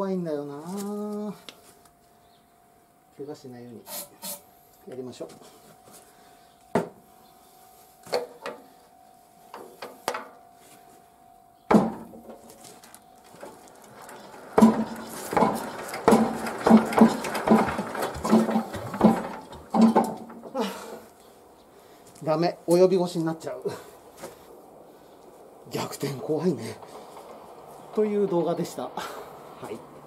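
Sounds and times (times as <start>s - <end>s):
diesel engine turning over: 13.2s - 21.2s, 23.8s - 30.0s
metallic clanks and knocks: 13.3s - 21.0s.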